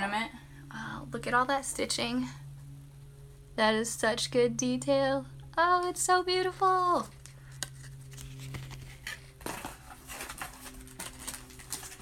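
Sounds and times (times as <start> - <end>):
hands rummaging in cardboard box: 8.2 - 12.0.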